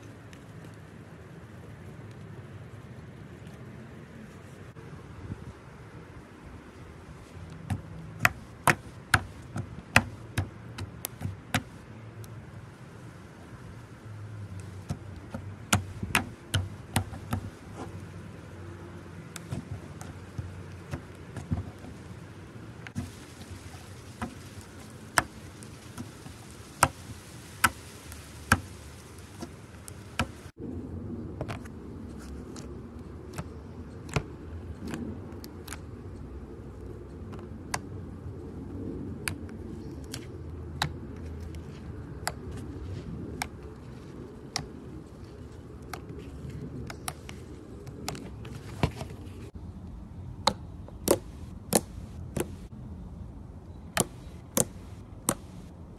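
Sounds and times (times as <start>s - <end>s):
soft slime crackling in plastic tub: 6.8s - 30.6s.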